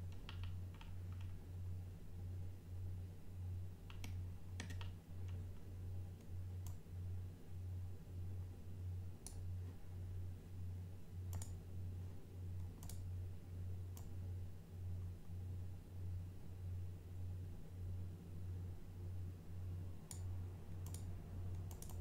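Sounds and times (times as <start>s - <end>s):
low pulsing hum: 0.0s - 22.0s
computer mouse clicking: 0.1s - 1.4s, 3.9s - 6.8s, 11.3s - 11.6s, 12.6s - 13.1s, 13.9s - 14.2s, 20.1s - 22.0s.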